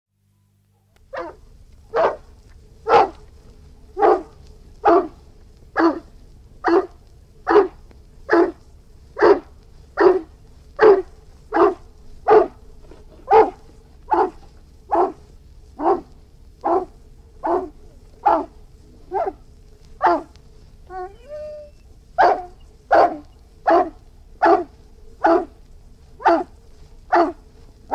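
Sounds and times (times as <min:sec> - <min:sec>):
dog barking: 0:01.1 - 0:03.2, 0:04.0 - 0:05.2, 0:05.8 - 0:08.6, 0:09.2 - 0:12.6, 0:13.3 - 0:19.4, 0:20.0 - 0:25.6, 0:26.2 - 0:26.5, 0:27.1 - 0:27.4.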